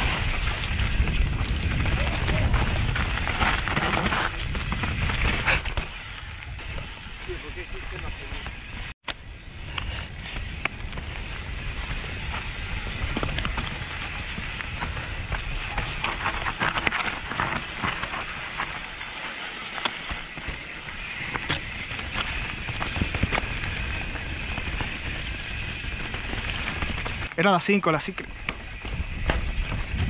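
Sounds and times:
wind rumble on microphone: 0.0 - 18.8, 28.3 - 30.0
bike rattling over bumps: 0.0 - 30.0
bike tyres on dirt and stones: 0.0 - 30.0.

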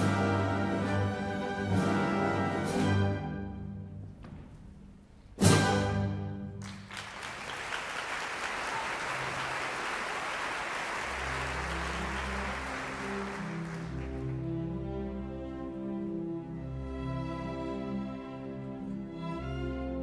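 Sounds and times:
audience applause: 6.6 - 14.5.

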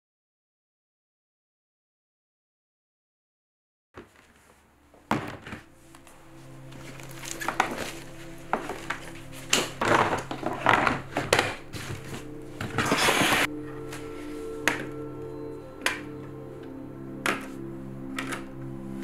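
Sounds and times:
rustling: 4.0 - 15.0
background music with low drone: 4.2 - 19.0.

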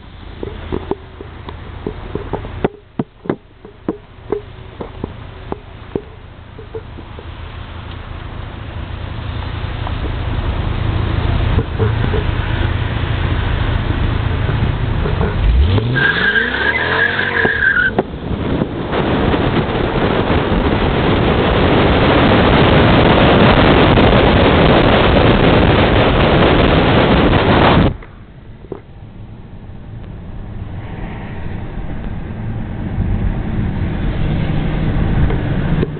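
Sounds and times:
car cabin noise: 0.0 - 35.9
car engine idling and revving: 0.0 - 35.9
wind and road noise: 0.0 - 35.9
tire squeal: 11.0 - 18.1.

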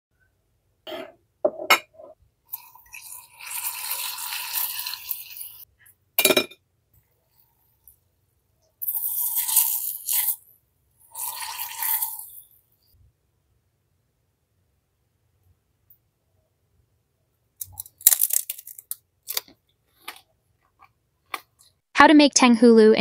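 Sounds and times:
candy shell crackling and crunching: 17.6 - 20.2.

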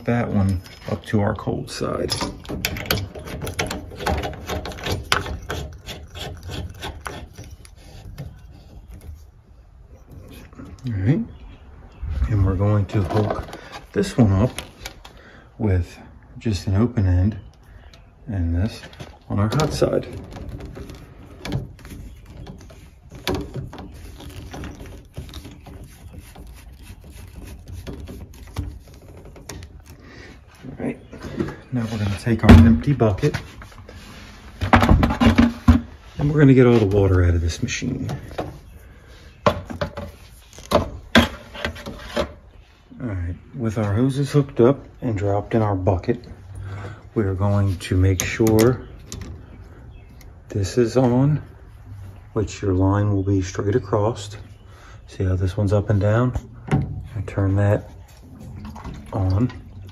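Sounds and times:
metal scraping clicks and rubs: 0.0 - 10.9, 18.7 - 30.0, 39.7 - 42.6.

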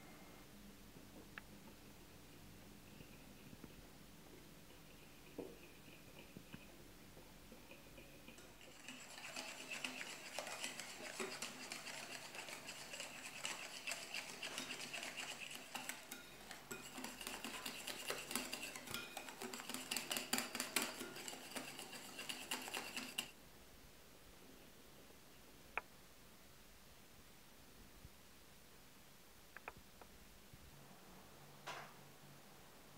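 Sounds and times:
whisk clicking against bowl: 7.7 - 23.4.

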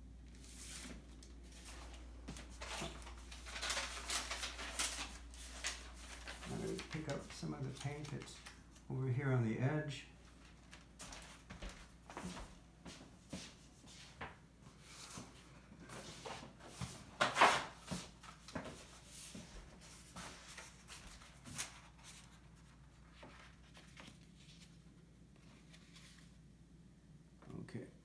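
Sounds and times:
paper rustling: 0.3 - 8.9, 10.2 - 12.4, 16.0 - 26.4.

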